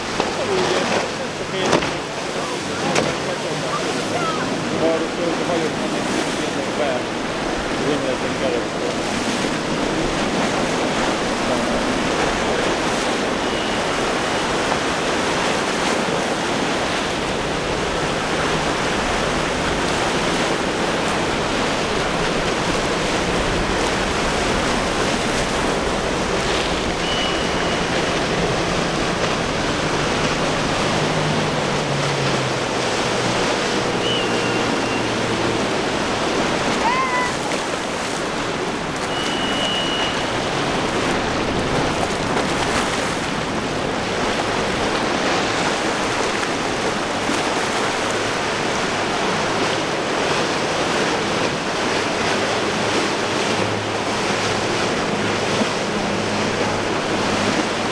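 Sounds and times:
boat outboard motors droning: 0:00.0 - 0:57.9
surf breaking: 0:00.0 - 0:57.9
short high chirps: 0:27.0 - 0:27.9, 0:39.1 - 0:40.3.

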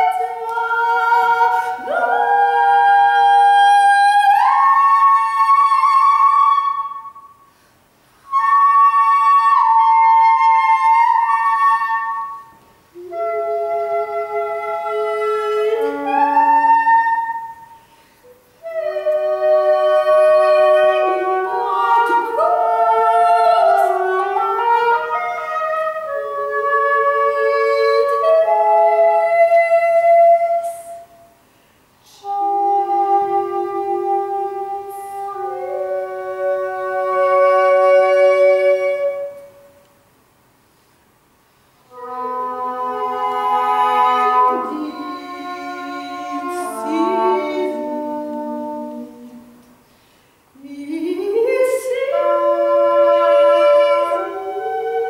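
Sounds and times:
english horn playing held notes: 0:18.6 - 0:29.2, 0:41.9 - 0:49.7.

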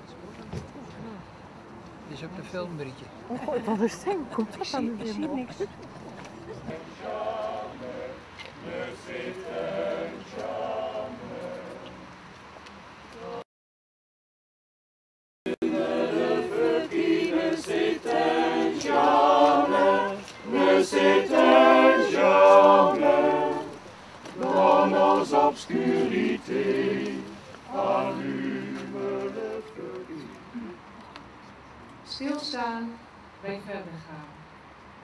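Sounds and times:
group singing unaccompanied: 0:06.5 - 0:12.2, 0:13.2 - 0:13.4, 0:15.5 - 0:30.6.

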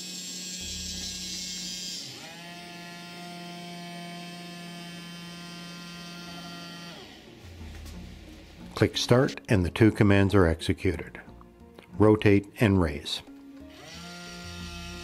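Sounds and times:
small gear motors whining: 0:00.0 - 0:07.4, 0:13.7 - 0:15.0.

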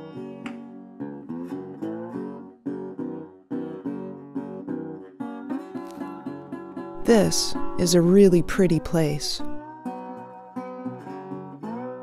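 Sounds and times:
acoustic guitar strumming: 0:07.0 - 0:09.6.

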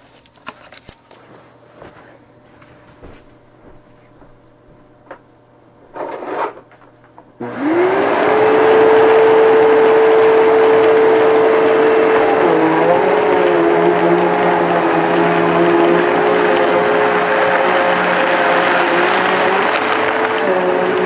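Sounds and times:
vacuum cleaner motor whine: 0:07.4 - 0:21.0.

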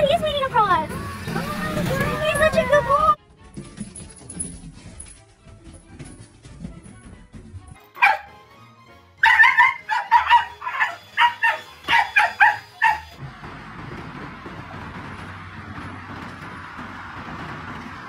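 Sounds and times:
dog barking: 0:08.0 - 0:08.3, 0:09.2 - 0:13.2.

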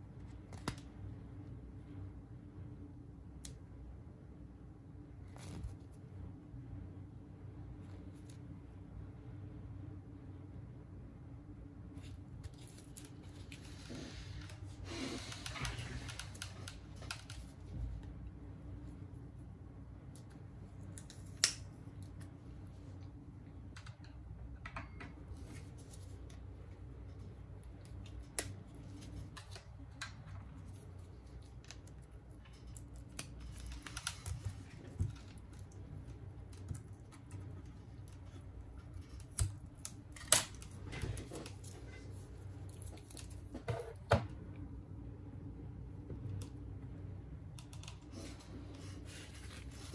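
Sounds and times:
steady low hum: 0:00.0 - 0:49.9.

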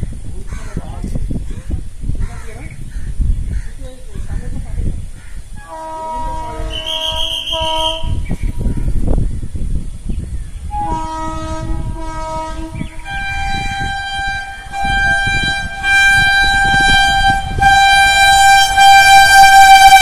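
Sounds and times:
train horn blasts: 0:05.6 - 0:09.0, 0:10.7 - 0:20.0.

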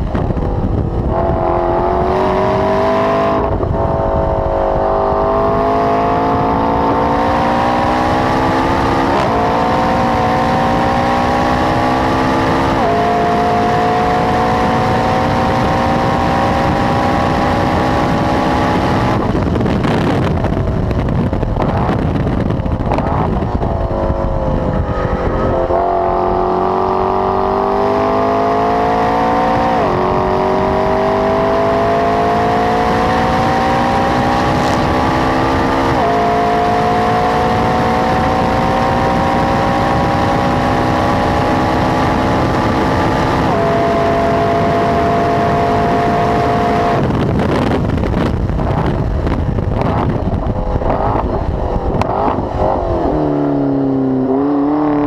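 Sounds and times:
car engine at full throttle: 0:00.0 - 0:55.0
exhaust crackling: 0:00.0 - 0:55.0.

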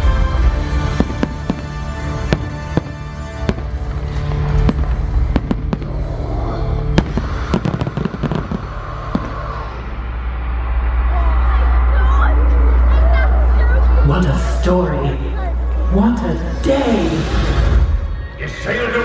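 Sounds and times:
music soundtrack: 0:00.0 - 0:19.0
fireworks bangs and crackling pops: 0:00.7 - 0:06.1, 0:07.0 - 0:09.6.

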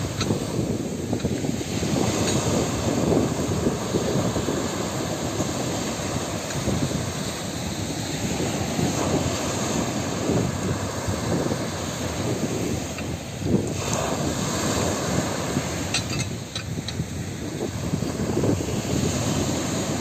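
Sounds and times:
surf washing onto beach: 0:00.0 - 0:20.0
wind buffeting microphone: 0:00.0 - 0:20.0.

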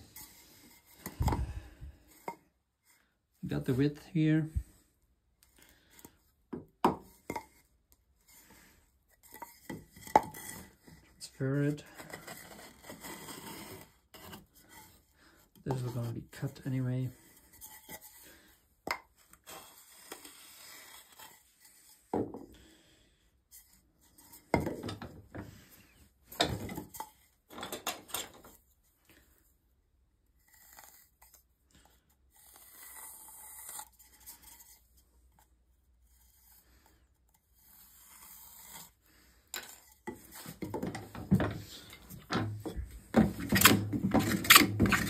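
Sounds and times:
wood rubbing and scraping: 0:39.6 - 0:45.0.

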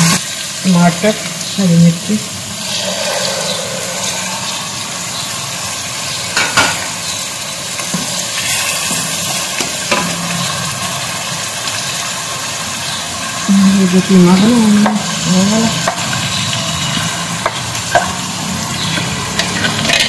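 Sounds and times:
onions sizzling in oil: 0:00.0 - 0:20.0.

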